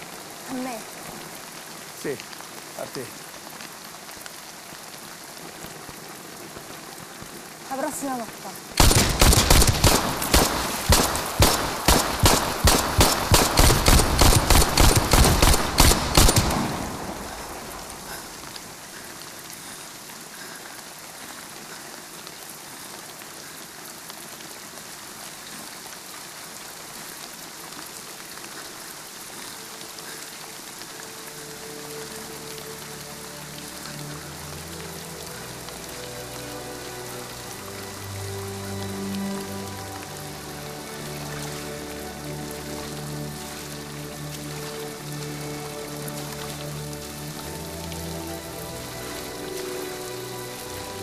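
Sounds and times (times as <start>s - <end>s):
heavy rain: 0.0s - 51.0s
rapid pistol shots: 8.8s - 17.2s
low music tones: 30.5s - 51.0s.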